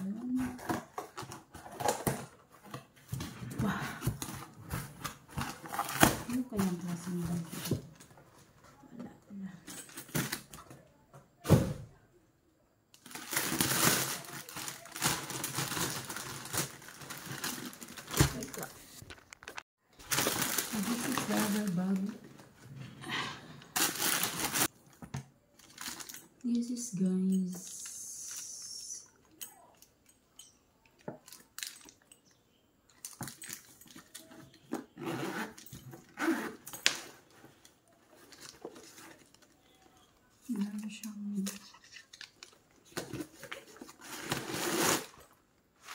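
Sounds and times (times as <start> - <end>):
packaging rustling and crinkling: 0.1 - 8.5, 13.0 - 22.8, 23.7 - 26.4, 31.1 - 32.0, 33.0 - 45.9
clicks and rustles of bag handling: 29.3 - 45.9.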